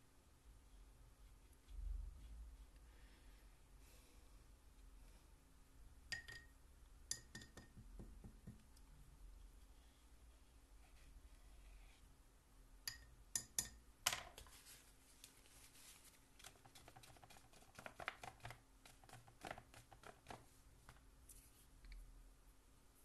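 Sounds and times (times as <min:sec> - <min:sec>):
tissue dabbing on paper: 0:14.5 - 0:20.5.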